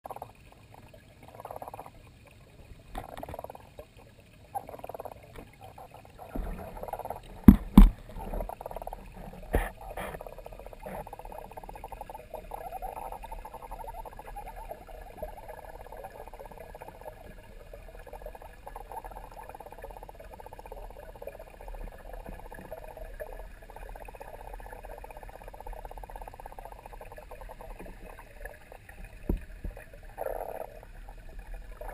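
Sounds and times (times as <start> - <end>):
muffled underwater noise: 2.6 - 31.9
sharp knocks: 7.4 - 8.0.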